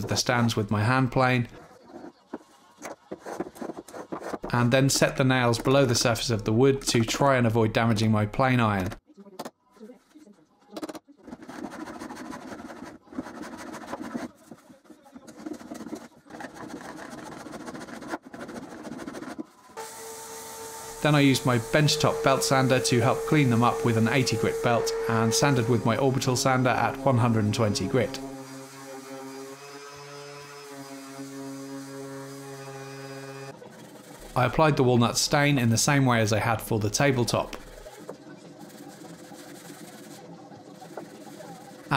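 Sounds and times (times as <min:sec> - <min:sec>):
hand plane rasping on wood: 0:11.3 - 0:19.5, 0:20.9 - 0:29.6, 0:37.6 - 0:41.9
orbital sander humming on wood: 0:19.8 - 0:34.4.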